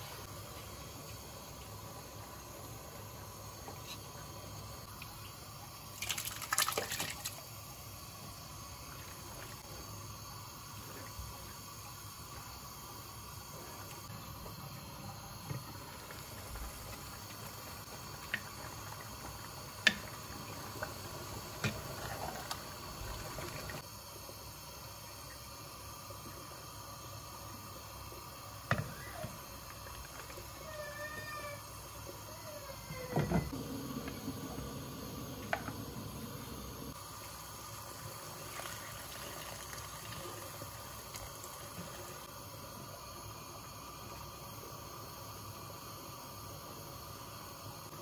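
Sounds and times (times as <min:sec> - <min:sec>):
broth simmering in a pot: 0:00.0 - 0:48.0.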